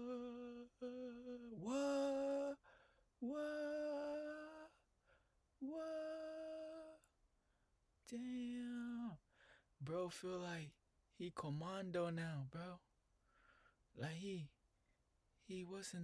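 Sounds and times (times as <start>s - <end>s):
person humming long notes: 0.0s - 2.6s, 3.2s - 4.8s, 5.6s - 7.0s.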